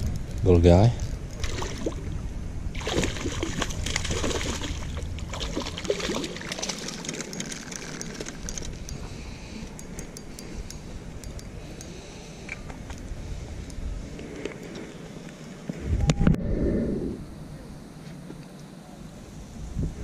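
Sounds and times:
fish splashing at surface: 2.8s - 8.5s.

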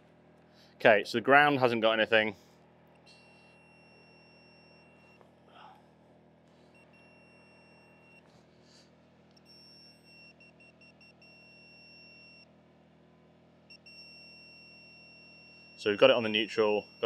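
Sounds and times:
voltage tester beeping: 2.9s - 5.3s, 6.7s - 8.3s, 9.3s - 12.5s, 13.7s - 17.0s.

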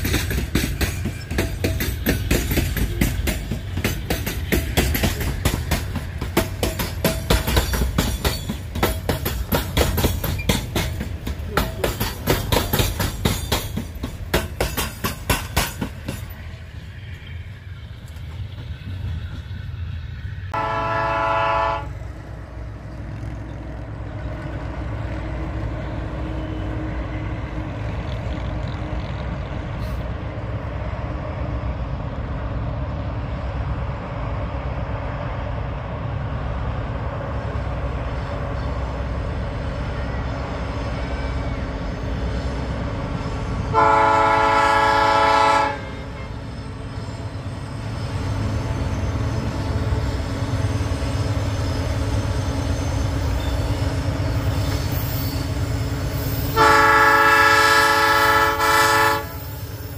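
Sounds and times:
freight train rumbling past: 0.0s - 59.9s
locomotive horn blasts: 20.5s - 22.0s, 43.7s - 46.4s, 56.6s - 59.6s.

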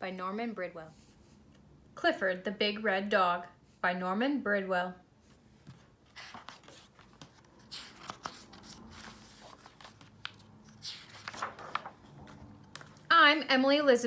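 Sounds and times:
book pages turning: 5.6s - 13.1s.

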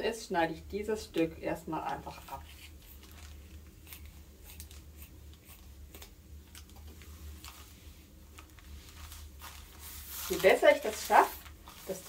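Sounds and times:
plastic crackling: 1.8s - 3.8s, 4.6s - 12.0s.

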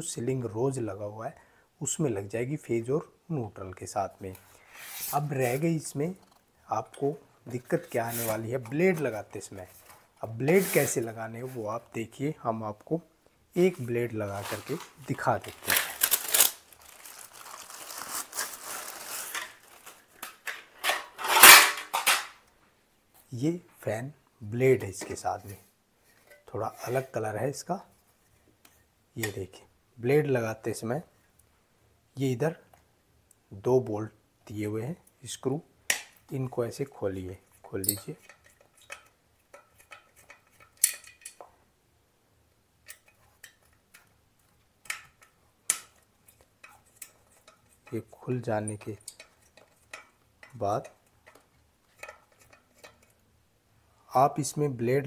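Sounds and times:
packing material crinkling: 14.2s - 20.5s
screwdriver clicking on metal screws: 52.0s - 53.2s.

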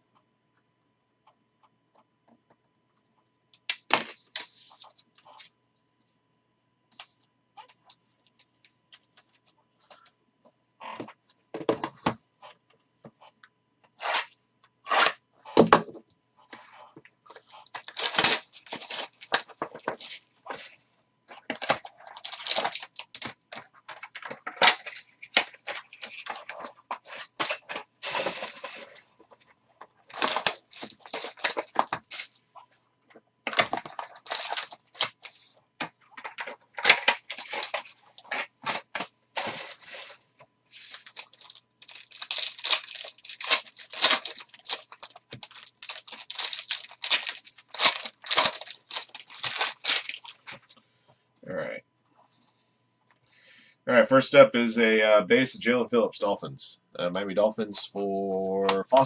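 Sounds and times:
foil wrappers crinkling and tearing: 17.3s - 29.1s, 29.8s - 32.4s, 33.4s - 50.7s.

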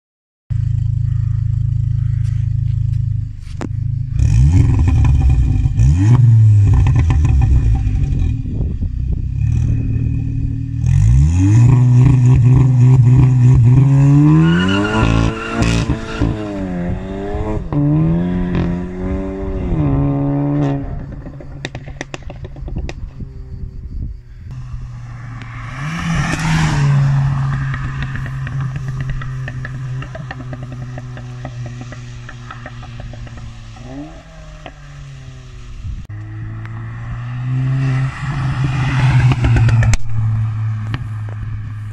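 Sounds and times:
car engine idling and revving: 0.5s - 41.9s
exhaust pops and crackles: 6.6s - 8.4s, 21.0s - 23.2s, 27.4s - 34.9s, 39.2s - 41.8s.

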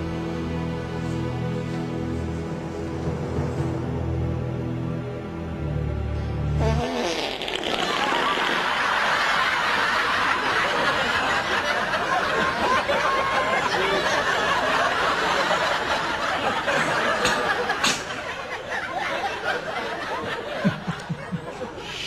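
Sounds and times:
people laughing: 7.6s - 22.0s.

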